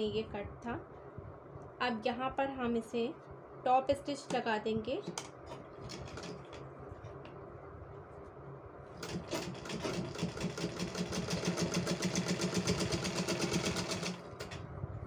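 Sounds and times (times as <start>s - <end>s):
sewing machine stitching clatter: 9.0s - 14.6s.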